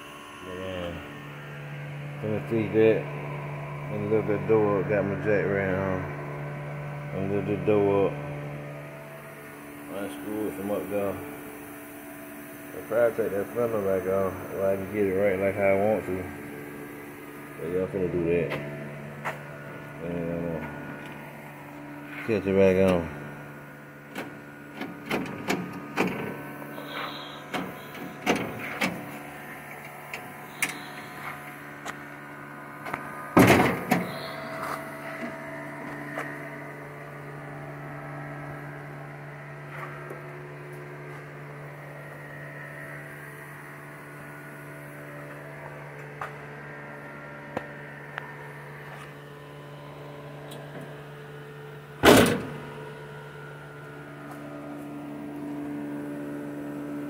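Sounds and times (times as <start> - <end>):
steady hum: 0.0 - 57.0
clicks and knocks on metal panels: 24.1 - 26.4, 27.5 - 29.1.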